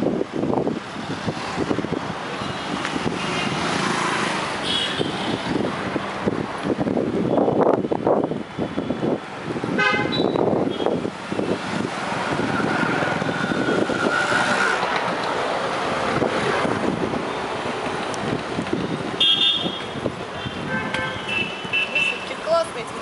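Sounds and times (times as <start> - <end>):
traffic rumble: 0.0 - 23.0
vehicle horn honk: 9.8 - 10.9, 19.2 - 19.8, 20.4 - 22.2.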